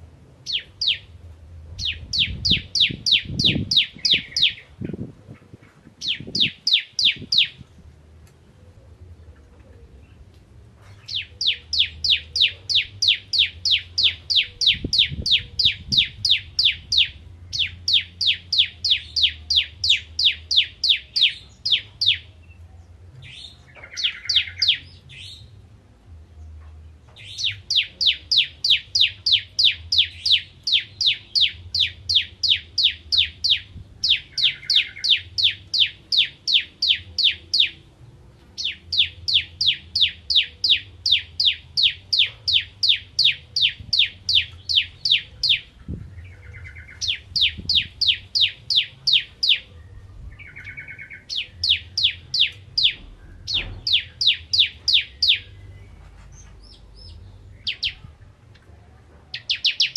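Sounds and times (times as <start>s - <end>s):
bird singing rapid sharp notes: 0.4s - 1.2s, 1.8s - 4.9s, 6.0s - 7.6s, 11.0s - 22.3s, 23.2s - 25.6s, 27.2s - 37.8s, 38.6s - 58.1s, 59.3s - 59.9s.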